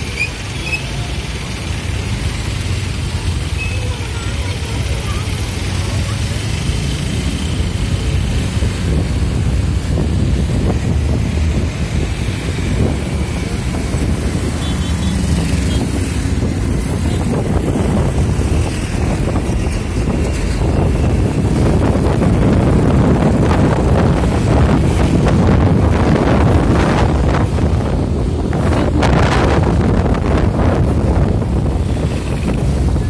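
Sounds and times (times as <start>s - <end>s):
vehicle rumbling on road: 0.0s - 33.0s
wind buffeting microphone: 7.5s - 33.0s.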